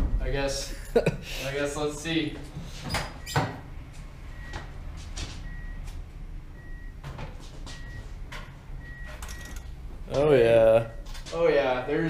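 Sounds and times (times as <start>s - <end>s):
car warning chime beeps: 4.2s - 4.8s, 5.4s - 7.0s, 7.7s - 9.8s, 10.8s - 11.2s.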